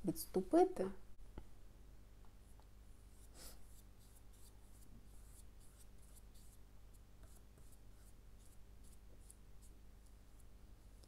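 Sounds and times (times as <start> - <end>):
paintbrush strokes on paper: 2.4 - 11.0.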